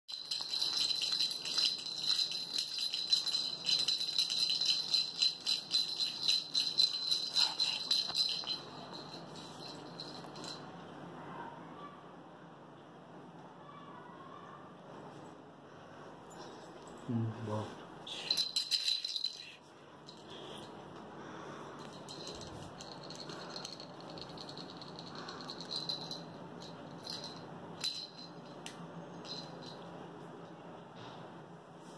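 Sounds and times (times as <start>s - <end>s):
jingle bells shaken: 0.1s - 10.7s, 18.1s - 20.8s, 21.7s - 30.0s.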